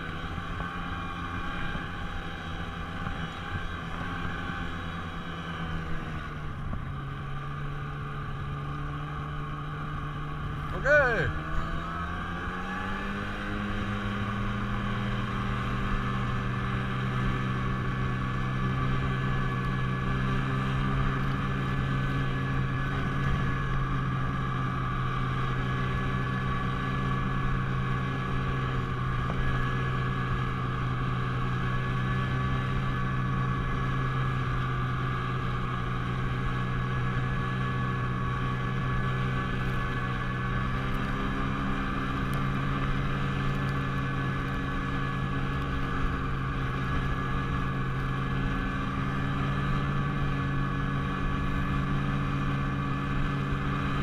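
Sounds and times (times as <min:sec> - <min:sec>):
snowmobile engine drone: 0:00.0 - 0:54.0.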